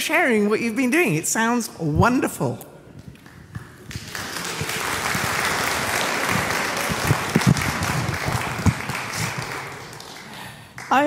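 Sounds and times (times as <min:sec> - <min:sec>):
congregation applauding: 0:03.0 - 0:11.0.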